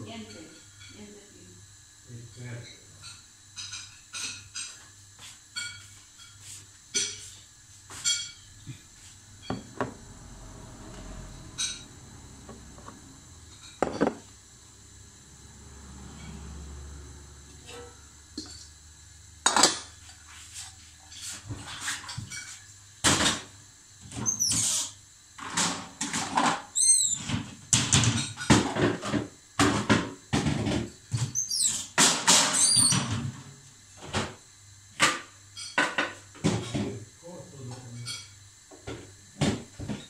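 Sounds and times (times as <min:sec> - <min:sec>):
cookware and dishes clanking: 0:00.2 - 0:01.0, 0:02.3 - 0:08.8, 0:09.4 - 0:09.9, 0:11.5 - 0:12.0, 0:12.6 - 0:14.3, 0:19.4 - 0:20.4, 0:21.1 - 0:23.5, 0:25.4 - 0:33.3, 0:35.0 - 0:37.0, 0:37.8 - 0:40.0
short high squeaks: 0:24.2 - 0:25.0, 0:26.7 - 0:27.3, 0:31.3 - 0:31.9, 0:32.5 - 0:33.0.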